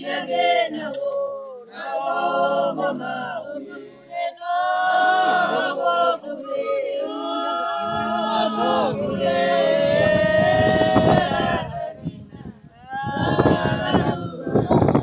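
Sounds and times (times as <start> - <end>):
group singing unaccompanied: 0.0 - 15.0
rough low rumble: 7.8 - 12.6.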